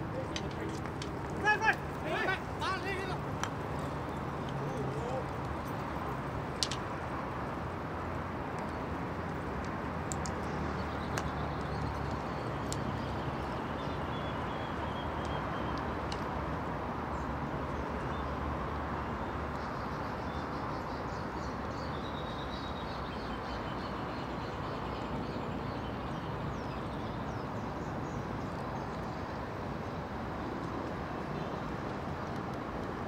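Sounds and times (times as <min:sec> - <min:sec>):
steady outdoor noise: 0:00.0 - 0:33.0.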